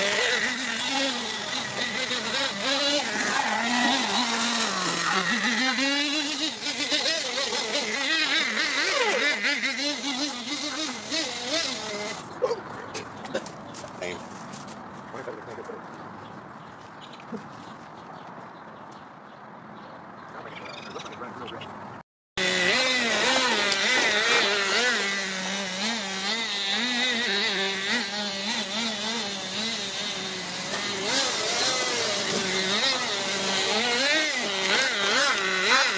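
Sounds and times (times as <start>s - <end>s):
small model engine revving: 0.0s - 12.4s, 22.4s - 35.9s.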